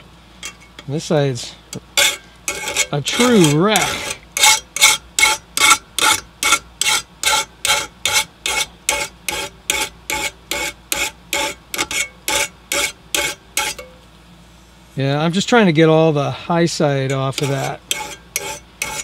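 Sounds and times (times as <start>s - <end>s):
file stroking metal blade: 2.0s - 13.9s, 17.1s - 19.0s.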